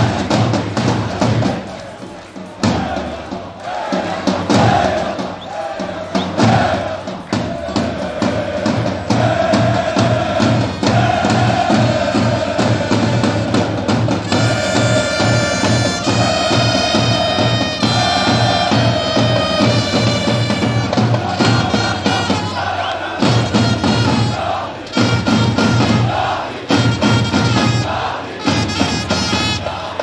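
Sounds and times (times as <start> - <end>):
bass drum pounding: 0.0 - 1.8, 2.6 - 29.4
crowd chanting: 0.0 - 30.0
wind instrument long notes: 14.2 - 29.8.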